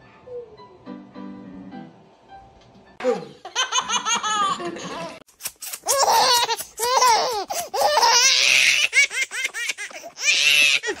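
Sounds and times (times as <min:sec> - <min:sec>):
baby laughing: 0:03.2 - 0:11.0.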